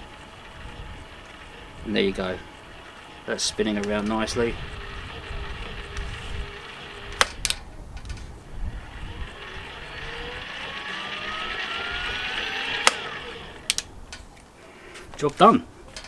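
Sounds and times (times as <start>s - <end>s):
electric motor whirring and whining: 0.0s - 7.6s, 8.3s - 14.0s
sharp clicks: 2.5s - 14.5s.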